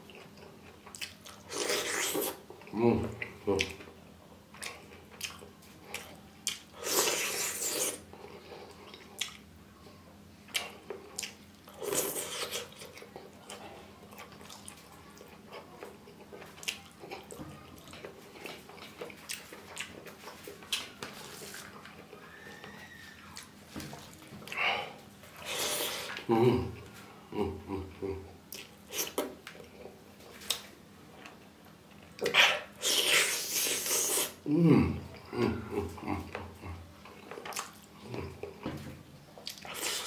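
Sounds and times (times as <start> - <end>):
chewing: 0.0 - 3.9, 4.5 - 9.5, 10.5 - 24.7, 27.7 - 34.4, 35.1 - 38.7, 39.3 - 40.0
wet mouth noises: 1.0 - 3.8, 6.0 - 8.1, 10.5 - 13.2, 25.4 - 30.7, 32.2 - 35.3.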